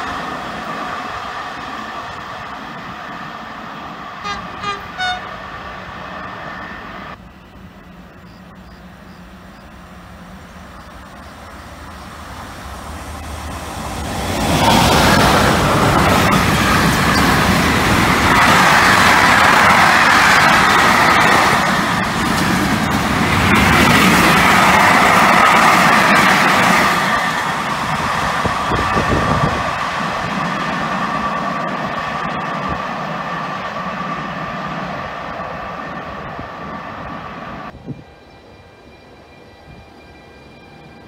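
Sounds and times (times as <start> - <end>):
freight train passing: 0.0 - 41.0
train horn toots: 4.2 - 5.4.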